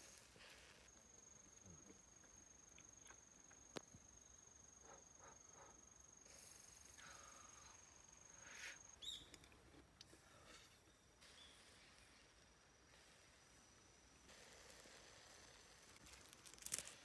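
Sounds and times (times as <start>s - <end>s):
insect trilling: 0.1s - 9.4s, 13.5s - 17.0s.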